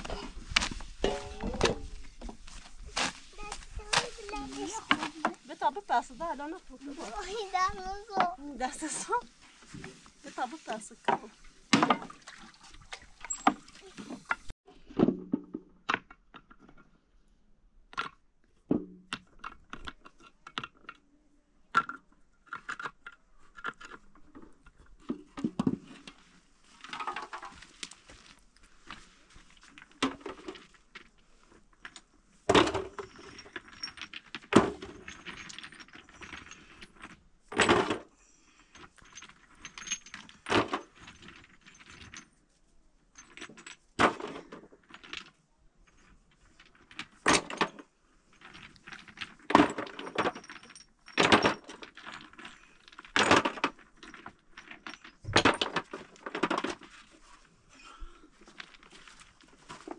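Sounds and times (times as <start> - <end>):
rubble scraping and shifting: 0.0 - 12.2, 43.3 - 59.9.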